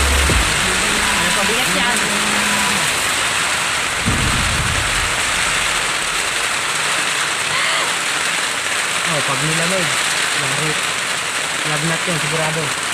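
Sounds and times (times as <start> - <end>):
low rumble: 0.0 - 6.9
heavy rain pouring: 0.0 - 12.9.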